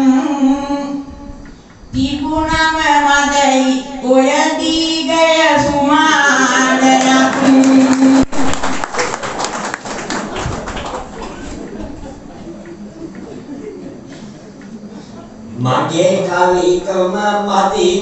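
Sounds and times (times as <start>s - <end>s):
woman singing into a microphone: 0.0s - 8.2s
audience applause: 6.8s - 12.8s.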